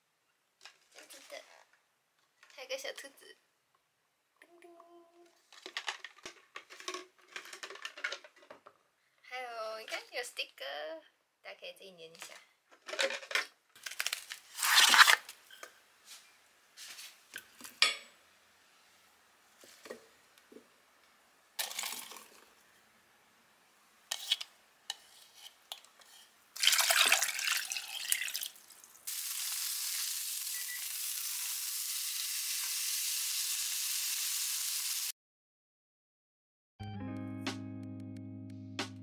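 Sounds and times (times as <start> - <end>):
handling noise rustling and clatter: 5.4 - 8.8, 12.2 - 15.1.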